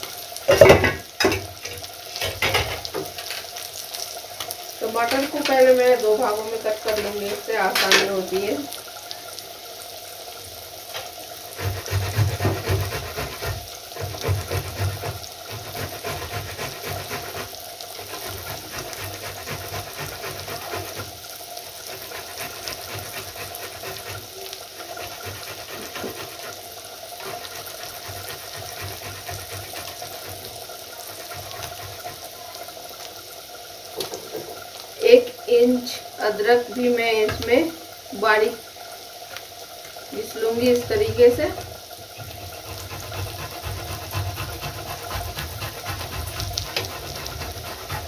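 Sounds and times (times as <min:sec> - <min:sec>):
potatoes sizzling in oil: 0:00.0 - 0:48.0
tomato rasping on grater: 0:11.5 - 0:32.6, 0:42.2 - 0:48.0.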